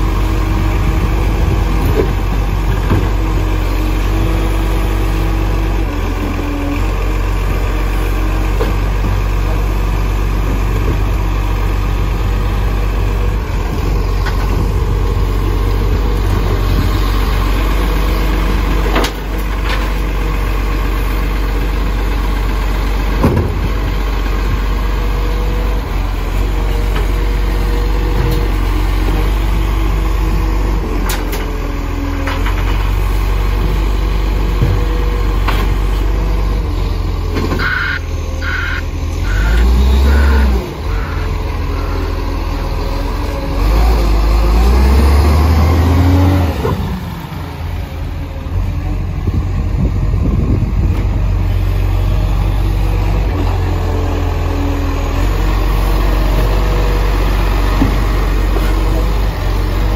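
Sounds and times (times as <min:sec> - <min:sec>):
hydraulic lift whine: 0:37.5 - 0:42.7.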